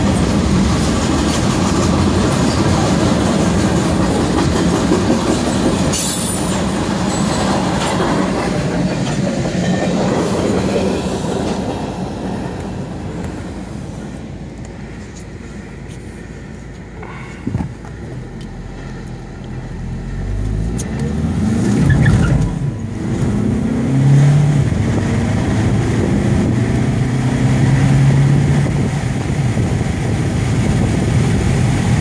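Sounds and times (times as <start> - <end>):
car engine accelerating: 18.0 - 28.9.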